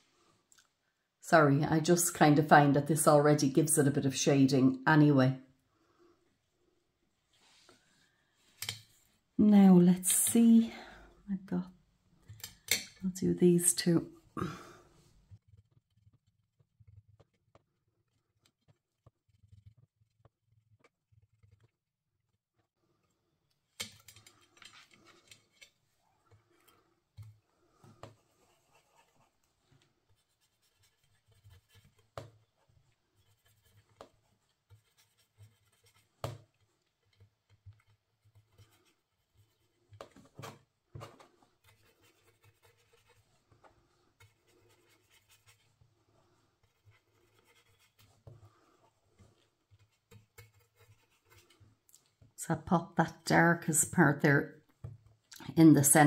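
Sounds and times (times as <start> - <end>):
brush scratching on card: 15.4 - 21.7, 28.0 - 51.8.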